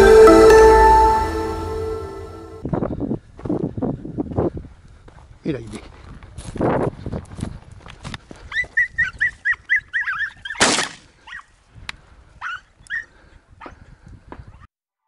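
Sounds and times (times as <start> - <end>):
dog yipping: 8.5 - 11.5, 12.4 - 13.1
shotgun shot: 10.6 - 11.0.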